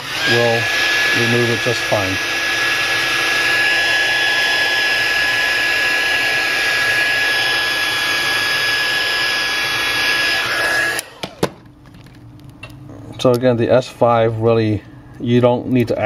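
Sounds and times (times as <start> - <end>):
heat gun blowing hot air: 0.0 - 11.5.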